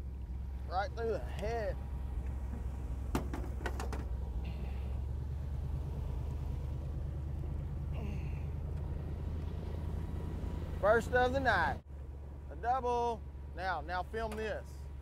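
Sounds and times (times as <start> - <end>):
boat engine hum: 0.0 - 15.0
sharp clicks and knocks: 2.2 - 4.2.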